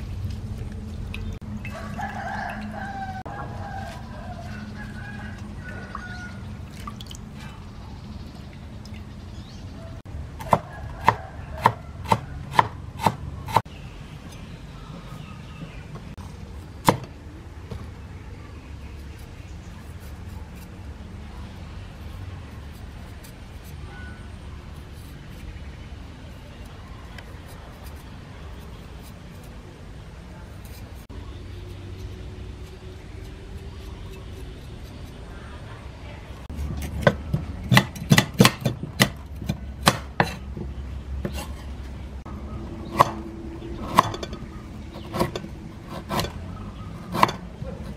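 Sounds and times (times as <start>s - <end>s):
cleaver chopping on wooden board: 10.4s - 13.6s, 36.8s - 40.4s, 47.0s - 47.9s
blade scraping root skin: 18.8s - 29.7s, 30.3s - 35.5s, 42.8s - 47.9s.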